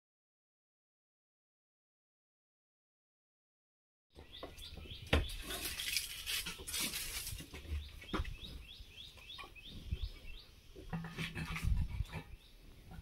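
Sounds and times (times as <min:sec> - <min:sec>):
small bird chirping: 0:04.2 - 0:06.7, 0:07.6 - 0:11.0.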